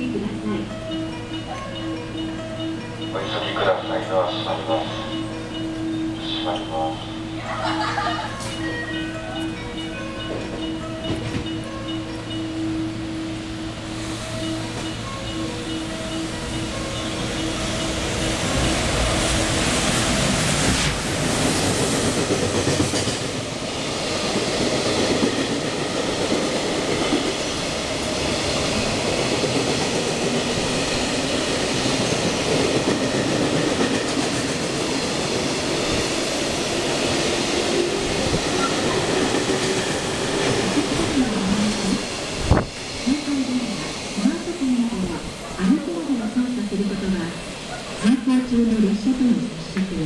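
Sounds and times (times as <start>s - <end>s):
freight train passing at speed: 0.0s - 50.0s.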